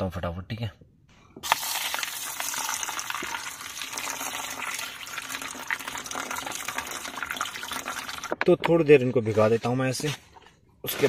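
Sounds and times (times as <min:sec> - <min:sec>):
water pouring into a pot: 0:01.4 - 0:08.4.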